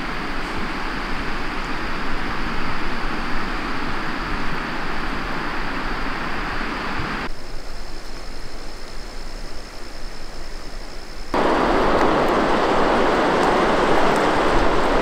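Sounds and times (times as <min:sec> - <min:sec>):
river water rushing: 0:00.0 - 0:07.3, 0:11.3 - 0:15.0.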